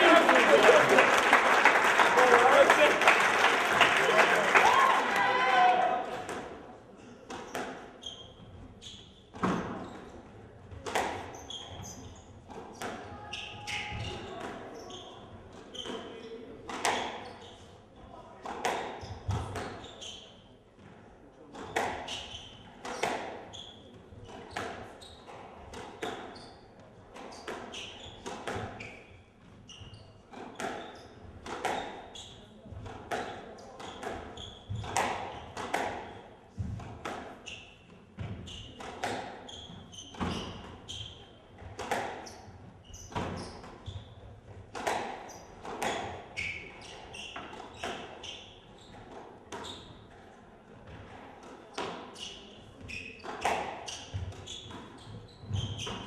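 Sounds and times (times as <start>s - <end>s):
squash ball cracking off rackets: 32.8s - 36.1s
squash ball smacking: 32.8s - 37.4s, 38.2s - 40.5s, 41.6s - 42.3s, 44.5s - 46.2s
shoes squeaking on wooden floor: 33.9s - 36.2s, 39.4s - 44.6s, 45.3s - 50.0s, 52.2s - 56.0s.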